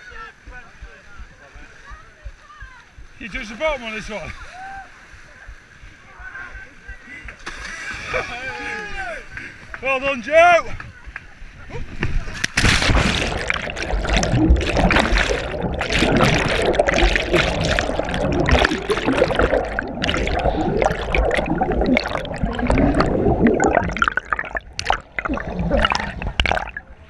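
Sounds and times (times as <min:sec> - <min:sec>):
river water churning and gurgling: 0:12.5 - 0:27.0.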